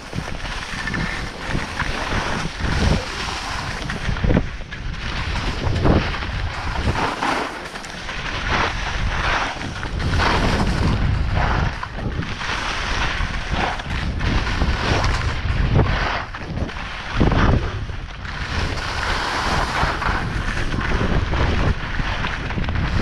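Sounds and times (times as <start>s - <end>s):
skis scraping over snow: 0.0s - 23.0s
wind buffeting microphone: 0.0s - 23.0s.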